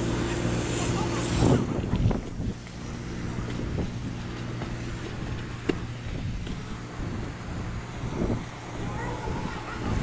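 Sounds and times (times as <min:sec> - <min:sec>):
pressure washer engine running: 0:00.0 - 0:10.0
spray hissing on roof tiles: 0:00.0 - 0:10.0
short bumps: 0:01.9 - 0:07.4.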